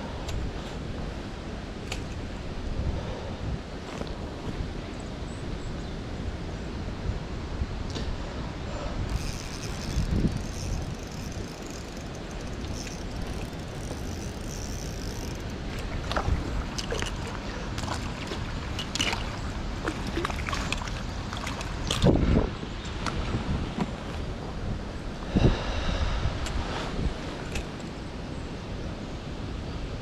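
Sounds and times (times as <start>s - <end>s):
wind buffeting microphone: 0.0s - 27.6s
steady outdoor rush: 0.0s - 30.0s
small ticks: 9.1s - 15.9s.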